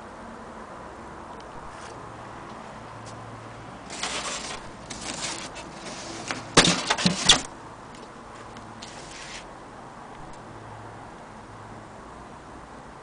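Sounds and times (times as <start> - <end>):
cardboard box rustling: 3.9 - 7.5, 8.8 - 9.5
sharp knocks and cracks: 6.3 - 8.1.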